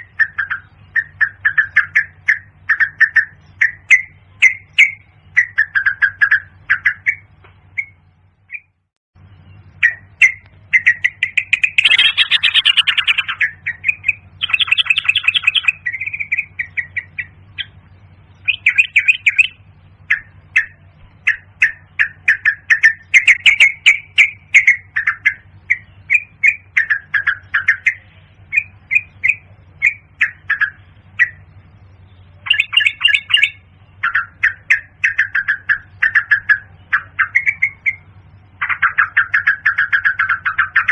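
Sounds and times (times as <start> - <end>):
steady low hum: 0.0 - 40.9
bird calling quick notes: 9.4 - 17.8, 18.4 - 31.5.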